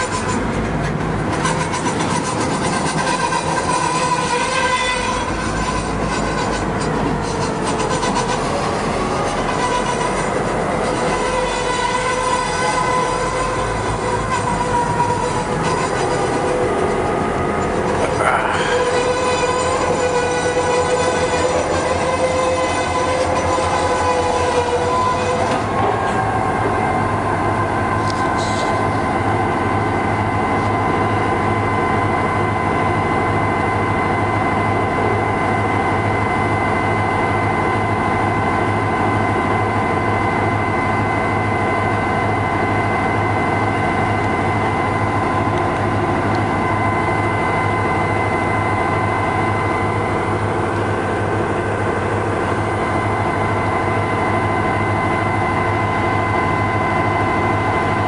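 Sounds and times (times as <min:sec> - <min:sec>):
locomotive engine idling: 0:00.0 - 0:58.0.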